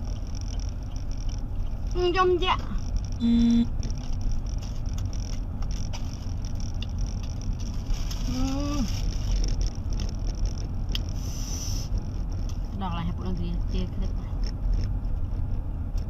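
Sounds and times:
car cabin road rumble: 0.0s - 16.0s
person humming: 3.2s - 3.7s.

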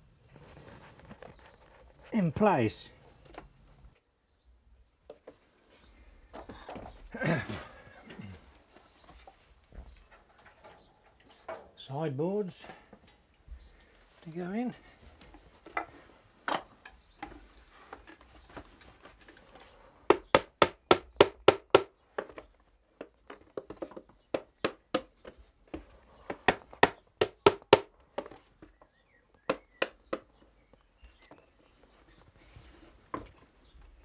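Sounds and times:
small hammer tapping nails: 26.4s - 27.9s.

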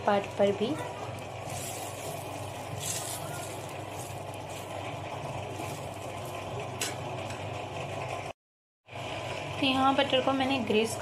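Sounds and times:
butter sizzling: 1.2s - 7.2s
brush spreading butter: 1.4s - 4.8s.

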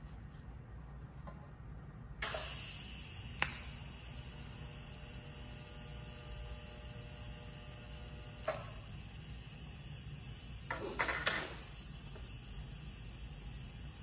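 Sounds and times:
welding arc hissing and buzzing: 2.2s - 14.0s.

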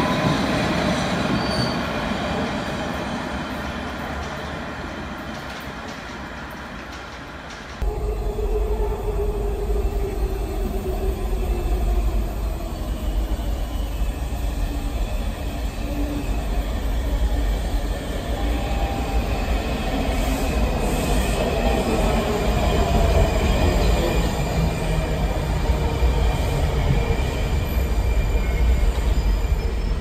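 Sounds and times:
train rumbling in tunnel: 0.0s - 30.0s
higher-pitched train tones: 7.8s - 30.0s.

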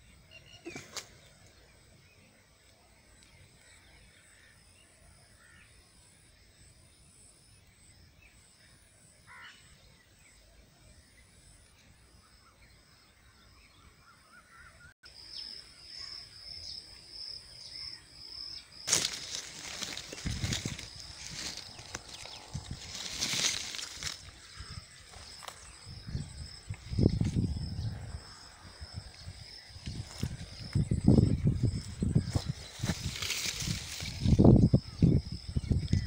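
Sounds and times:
loud rustling: 18.9s - 24.4s.

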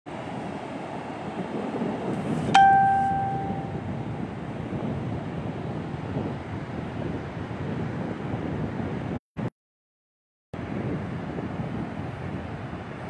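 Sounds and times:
surf on beach: 0.1s - 9.2s, 10.6s - 13.0s
wind: 0.1s - 9.5s, 10.6s - 13.0s
bell-like ding: 2.6s - 3.7s.

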